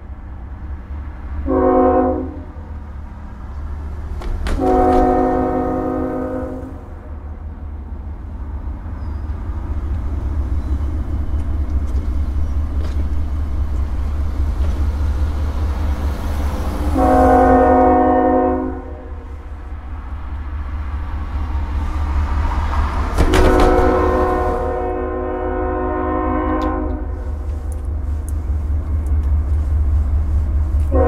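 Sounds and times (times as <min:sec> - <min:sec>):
locomotive air horn blasts: 0:01.4 - 0:02.6, 0:04.5 - 0:07.1, 0:16.8 - 0:19.5, 0:23.2 - 0:27.6
steady low rumble: 0:02.3 - 0:31.0.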